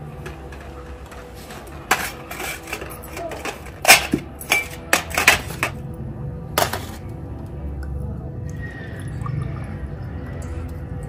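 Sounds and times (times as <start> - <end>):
glass cups clinking on metal tray: 1.9 - 5.8.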